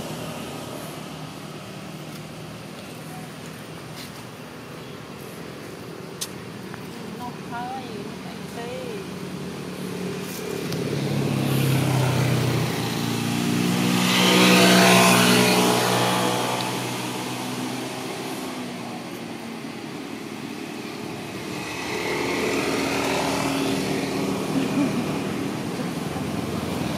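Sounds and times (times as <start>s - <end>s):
engine passing by: 0.0s - 5.8s, 6.4s - 26.9s
fainter engine approaching: 7.2s - 26.9s.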